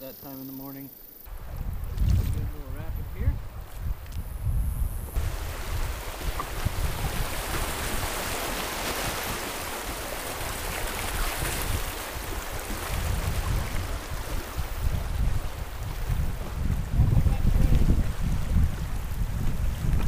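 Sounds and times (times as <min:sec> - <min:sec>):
wind buffeting microphone: 0:01.3 - 0:20.0
water rushing over rocks: 0:05.2 - 0:19.6.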